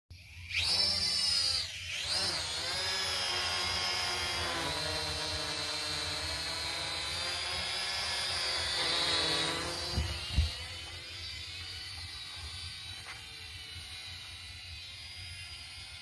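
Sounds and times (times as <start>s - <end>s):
drone propellers whining: 0.2s - 16.0s
low hum: 0.2s - 16.0s.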